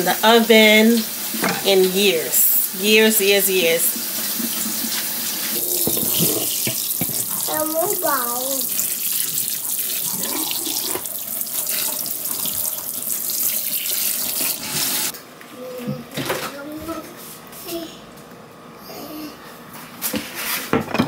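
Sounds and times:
faucet water splashing on meat: 4.0 - 15.1.

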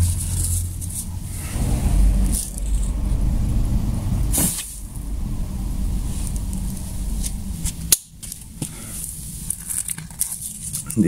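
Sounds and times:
black powder flaring whoosh: 1.1 - 9.5
burning powder hiss: 1.2 - 9.7.

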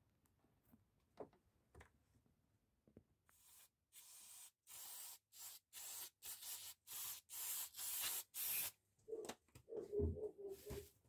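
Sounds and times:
short hissing spray strokes: 3.3 - 8.8.

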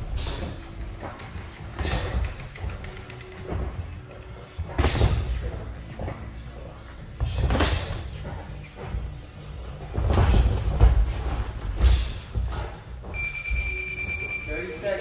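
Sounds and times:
footwork thuds on canvas: 9.7 - 13.1.

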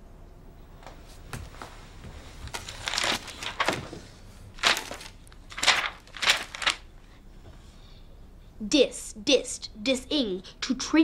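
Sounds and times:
dictionary pages turning: 1.4 - 7.0.

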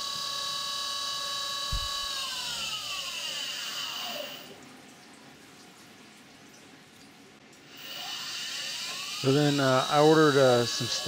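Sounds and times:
milling machine spindle winding down: 0.0 - 4.5, 7.8 - 11.0
coolant dripping and trickling: 4.5 - 7.7.

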